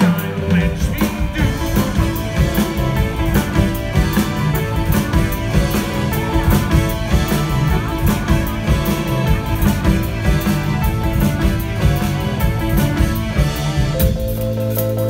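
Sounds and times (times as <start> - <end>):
drum kit beat: 0.0 - 15.0
electric bass: 0.0 - 15.0
electric guitar: 0.0 - 15.0.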